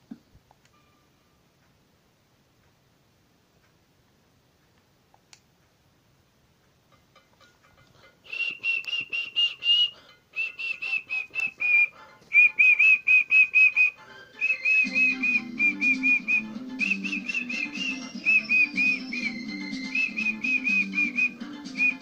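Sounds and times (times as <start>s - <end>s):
theme tune through tv speaker: 14.0s - 22.0s.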